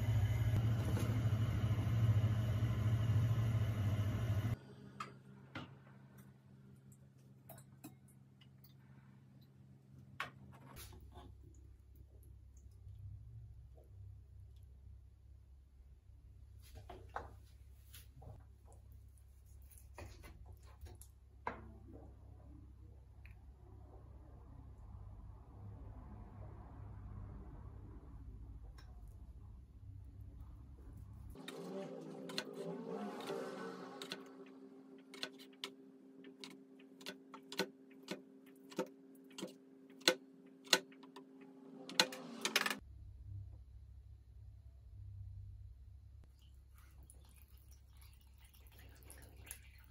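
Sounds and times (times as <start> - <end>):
steady low hum: 0.0 - 7.8.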